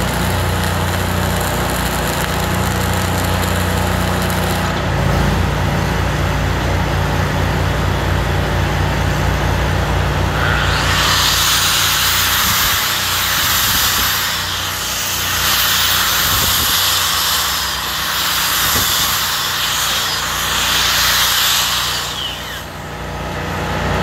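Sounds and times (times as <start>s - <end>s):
angle grinder wire wheel brushing steel: 10.2s - 23.0s.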